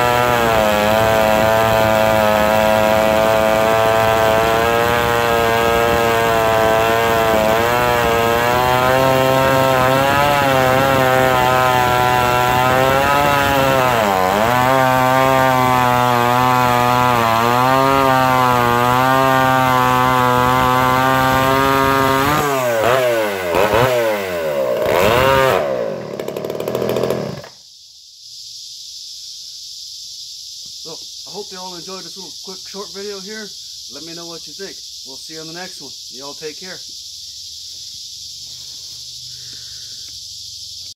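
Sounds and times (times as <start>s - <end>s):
chainsaw cutting log: 0.0s - 27.6s.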